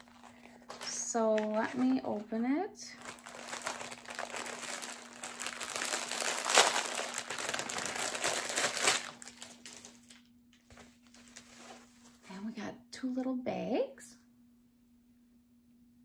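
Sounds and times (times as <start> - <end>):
packaging crinkling and rustling: 0.0 - 12.2.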